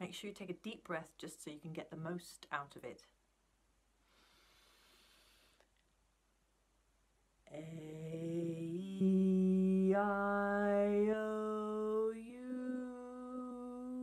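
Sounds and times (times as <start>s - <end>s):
woman singing vocal warm-up: 7.5s - 14.0s.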